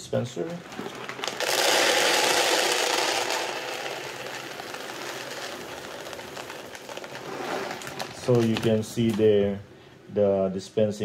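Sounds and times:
dry pellets pouring into plastic: 0.5 - 9.2.

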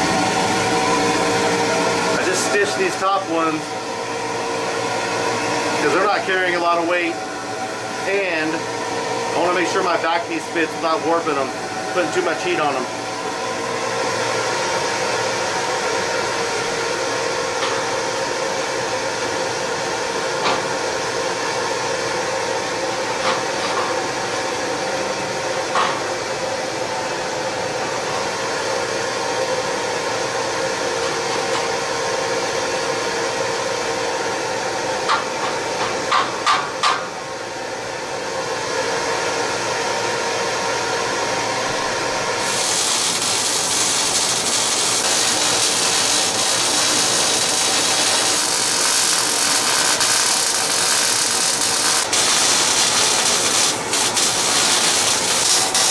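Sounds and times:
blower droning: 0.0 - 20.3, 37.7 - 55.9
bright hiss: 42.4 - 55.9.

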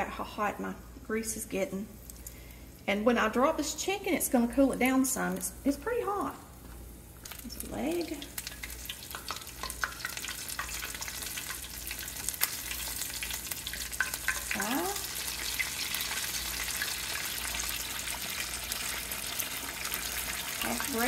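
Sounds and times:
oil sizzling and crackling: 2.0 - 2.5, 5.4 - 21.0.

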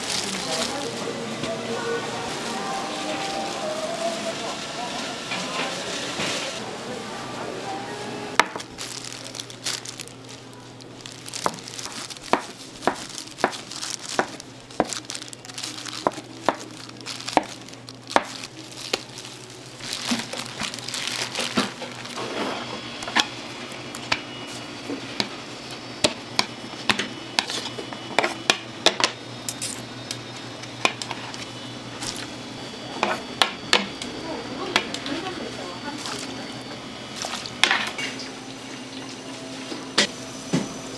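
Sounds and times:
crinkling: 0.0 - 1.2, 8.4 - 22.7
low machine hum: 0.0 - 40.9.

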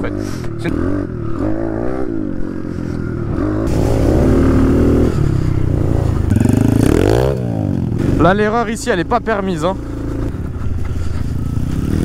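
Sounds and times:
dirt bike engine revving: 0.0 - 10.5, 11.3 - 12.0.

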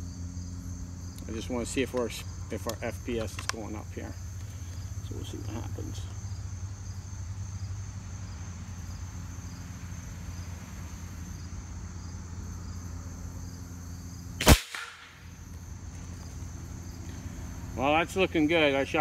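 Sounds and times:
insects chirping: 0.0 - 19.0
air rifle shot: 14.4 - 15.3.

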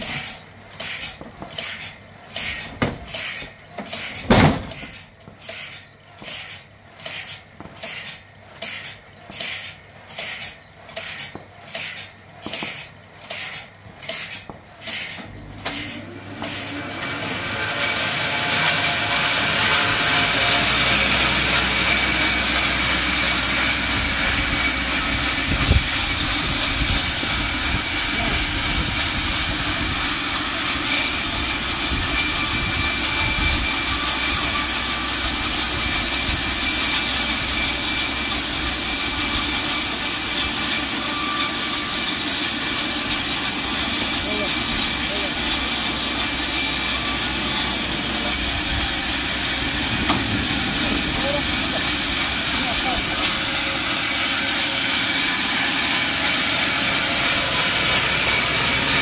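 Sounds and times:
band sawmill running: 0.0 - 59.0
steady machine whine: 15.2 - 59.0.

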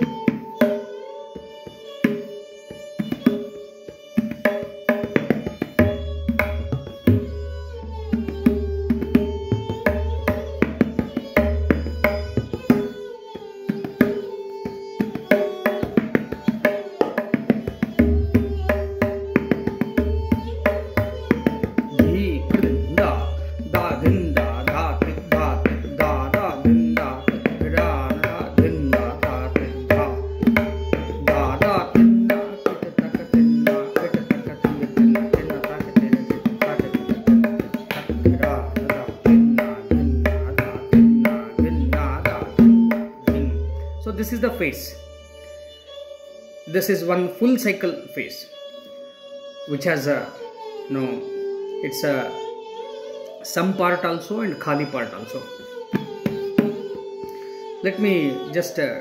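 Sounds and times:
tabla strokes: 0.0 - 44.7, 55.8 - 57.6
held melodic accompaniment: 0.0 - 59.0.

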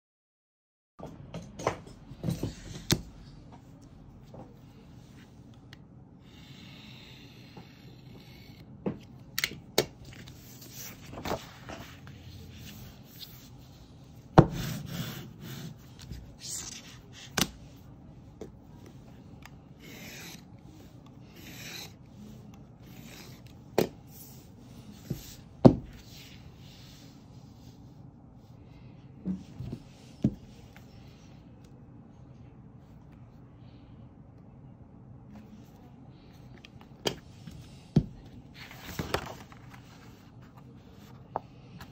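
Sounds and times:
utility knife scraping paper: 19.8 - 20.5, 21.3 - 22.0.

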